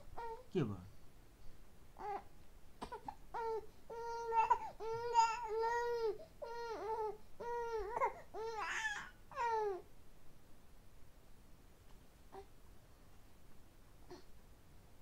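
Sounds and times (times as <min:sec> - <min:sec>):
baby cooing: 0:00.1 - 0:00.4, 0:02.0 - 0:09.8.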